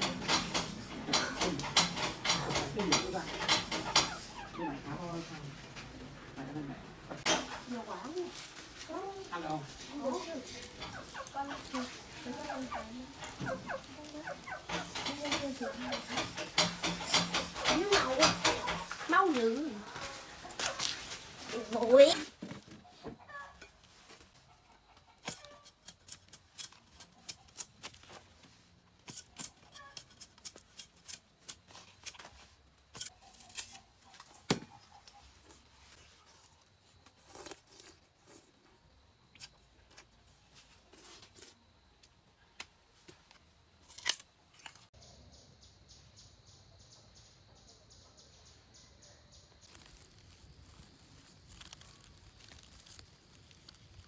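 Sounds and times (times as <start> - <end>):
knife cutting sugarcane rind: 25.2 - 28.2, 29.0 - 34.6, 37.0 - 38.6, 43.8 - 44.9, 49.7 - 54.0
sugarcane cracking: 37.0 - 38.3, 43.8 - 44.9, 49.6 - 54.0.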